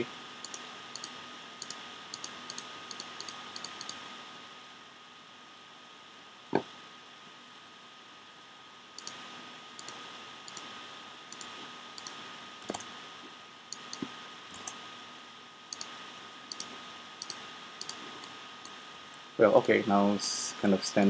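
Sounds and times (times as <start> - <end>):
faint steady hiss: 0.0 - 21.0
thin steady whine: 0.0 - 21.0
computer mouse clicking: 0.4 - 4.0, 9.0 - 9.2, 9.8 - 10.7, 11.3 - 12.9, 13.7 - 14.8, 15.7 - 19.2.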